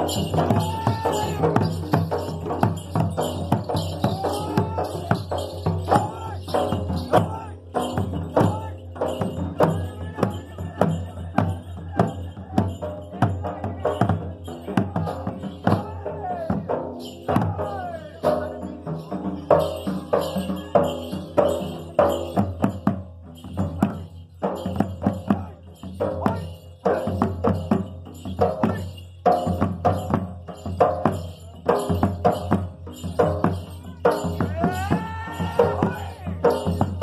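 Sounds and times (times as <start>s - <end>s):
barrel drum beaten with stick: 0.0s - 37.0s
jingling high percussion: 0.0s - 37.0s.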